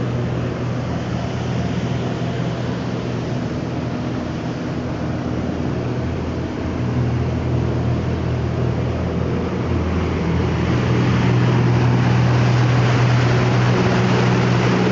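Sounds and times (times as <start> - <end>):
outboard motors droning: 0.0 - 14.9
rushing wake water: 0.0 - 14.9
wind: 0.0 - 14.9.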